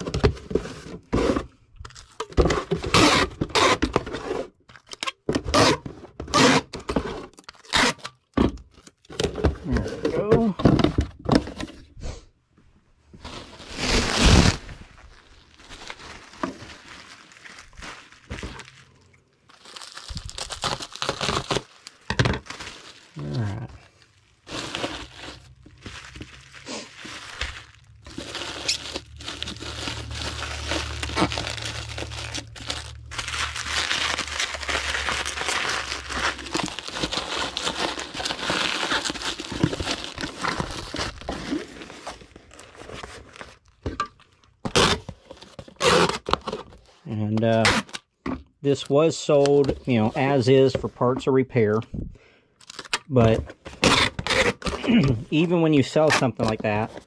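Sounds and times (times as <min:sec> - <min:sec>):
packing materials crinkling: 0:01.8 - 0:04.0, 0:13.2 - 0:48.1, 0:52.6 - 0:57.0
tearing: 0:07.5 - 0:08.2, 0:13.4 - 0:16.6, 0:19.6 - 0:23.7, 0:24.5 - 0:42.1, 0:44.6 - 0:46.6, 0:47.3 - 0:48.0, 0:53.7 - 0:55.2.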